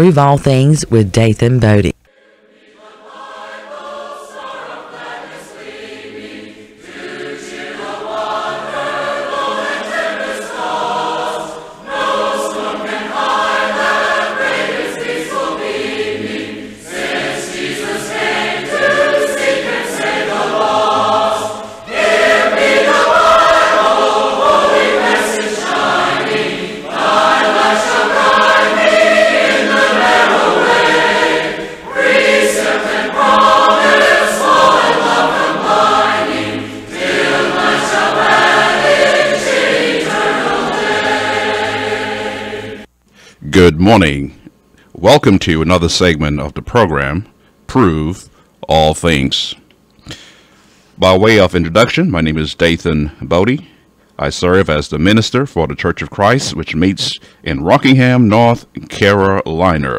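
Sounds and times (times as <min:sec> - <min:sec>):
choir singing a hymn a cappella: 0:02.1 - 0:42.9
singers breathing: 0:21.5 - 0:21.9, 0:31.5 - 0:31.9, 0:43.1 - 0:43.4, 0:50.0 - 0:51.0, 0:57.2 - 0:57.5.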